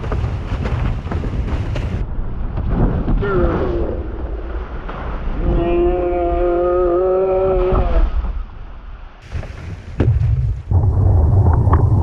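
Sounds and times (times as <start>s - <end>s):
wind buffeting microphone: 0.0s - 5.7s, 9.2s - 12.0s.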